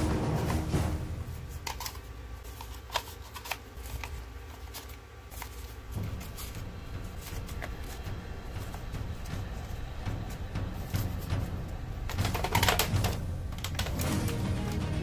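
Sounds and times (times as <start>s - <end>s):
plastic clicks and rattles: 12.1s - 14.1s.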